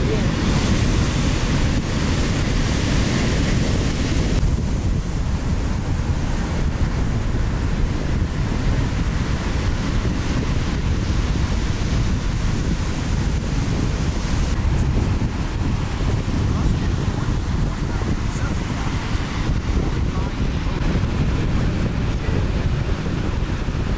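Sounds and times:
deep rumble: 0:00.0 - 0:23.9
ocean surf breaking: 0:00.0 - 0:23.9
wind on microphone: 0:00.0 - 0:23.9.

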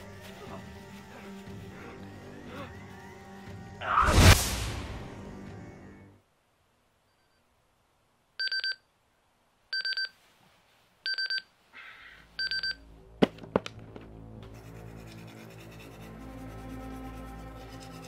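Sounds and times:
alarm clock beeping: 0:08.4 - 0:08.8, 0:11.1 - 0:11.4, 0:12.4 - 0:12.8.

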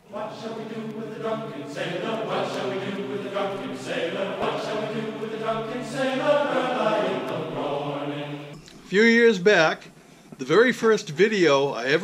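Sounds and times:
choir-like chanted voices: 0:00.0 - 0:08.6.

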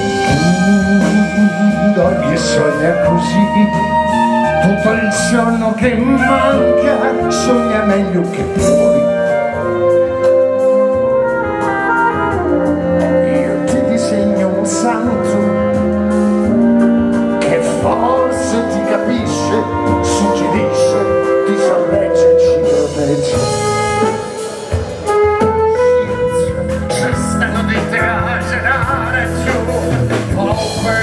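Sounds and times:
drums and cymbals: 0:00.0 - 0:31.0
electric bass: 0:00.0 - 0:31.0
keyboard: 0:00.0 - 0:31.0
saxophone: 0:00.0 - 0:31.0
man singing into microphone: 0:00.2 - 0:09.2, 0:13.1 - 0:15.7, 0:17.4 - 0:24.2, 0:26.8 - 0:31.0.

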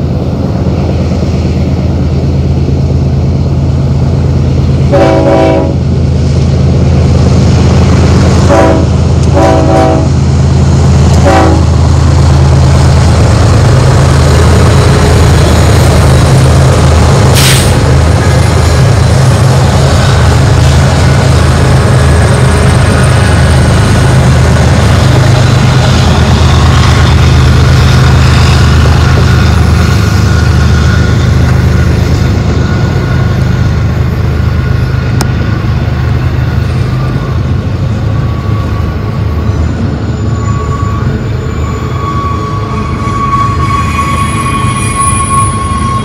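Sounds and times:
diesel locomotive engine drone: 0:00.0 - 0:46.0
train cars rolling on rails: 0:00.0 - 0:46.0
faint wheel squeal: 0:38.2 - 0:46.0.

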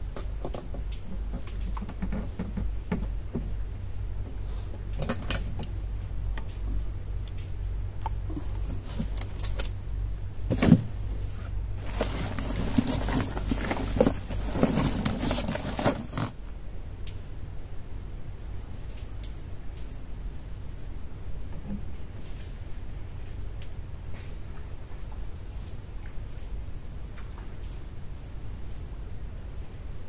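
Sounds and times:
rustling and scraping: 0:00.1 - 0:16.4.

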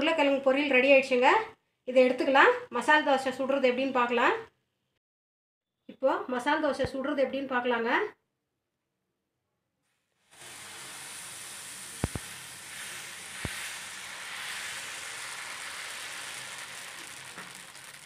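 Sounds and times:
batter sizzling on a hot pan: 0:09.9 - 0:18.0.

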